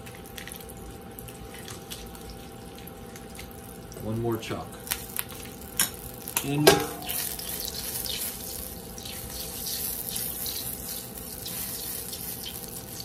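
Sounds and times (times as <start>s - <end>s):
butter sizzling in oil: 4.8s - 13.0s.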